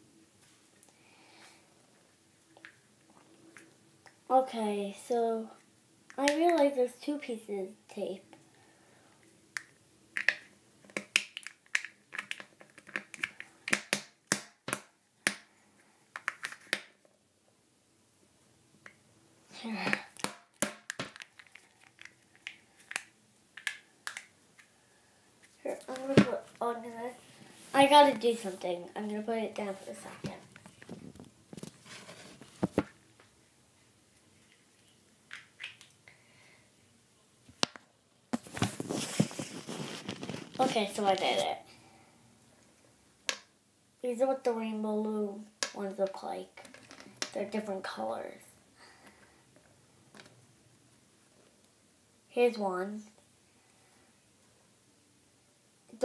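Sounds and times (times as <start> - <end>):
plastic egg clicks: 9.6 - 15.5, 19.8 - 24.7, 35.3 - 36.0
plastic rustling and clattering: 30.2 - 33.0, 38.4 - 41.4.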